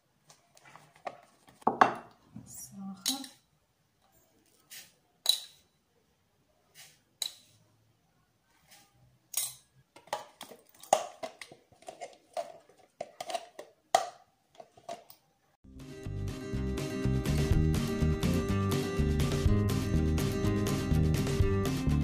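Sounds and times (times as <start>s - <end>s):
metal spoon clinking on glass bowl: 5.2s - 5.6s, 9.3s - 9.7s
spoon scraping plastic tub: 10.0s - 13.8s.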